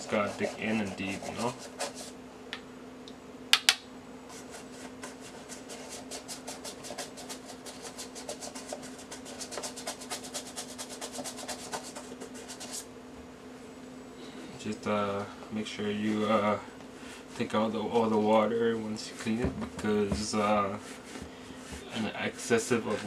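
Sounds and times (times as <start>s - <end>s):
toothbrush scrubbing leather shoe: 0.0s - 2.1s, 4.4s - 12.8s, 21.8s - 23.0s.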